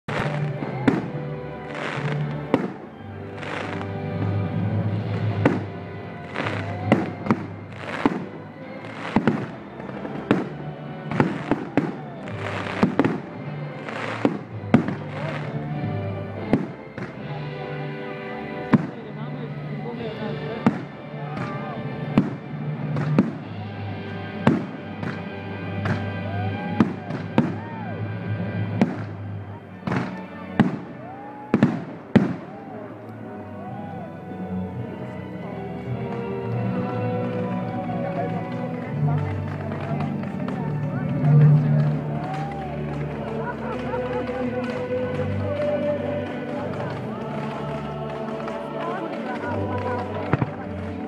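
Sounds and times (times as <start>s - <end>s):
music: 0.0s - 51.0s
fireworks bursting with sharp bangs: 0.1s - 17.6s, 18.6s - 19.1s, 20.5s - 32.8s, 38.4s - 51.0s.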